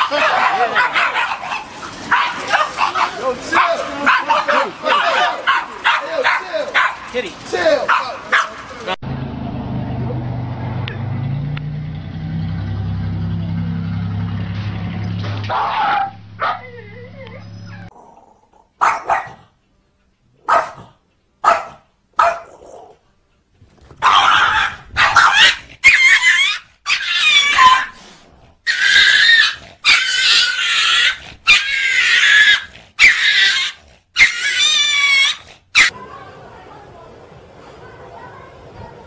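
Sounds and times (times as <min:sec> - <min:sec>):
dog yapping: 0:00.0 - 0:07.2, 0:07.9 - 0:08.6, 0:15.4 - 0:17.9, 0:18.8 - 0:19.4, 0:20.4 - 0:23.0, 0:24.0 - 0:28.0, 0:28.7 - 0:36.0.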